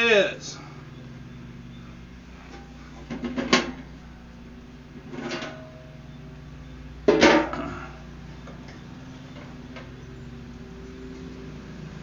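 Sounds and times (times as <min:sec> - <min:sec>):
grill clunk with metallic rattle: 0:02.4 - 0:10.3
light metal clatter: 0:05.0 - 0:06.2.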